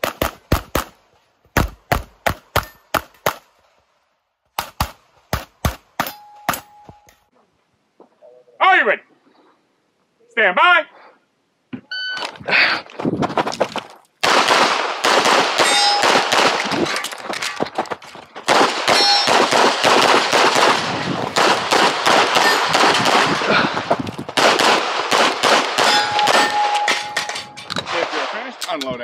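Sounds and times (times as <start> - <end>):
steel targets pinging: 6.0 - 7.2, 15.6 - 17.1, 18.9 - 19.5, 25.8 - 27.9
pistol shots: 14.2 - 16.8, 18.5 - 23.5, 24.4 - 28.5.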